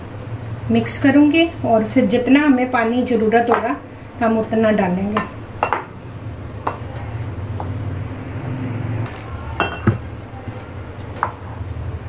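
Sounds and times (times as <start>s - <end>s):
steady low hum: 0.0s - 12.0s
ringing spoon clink: 9.6s - 10.0s.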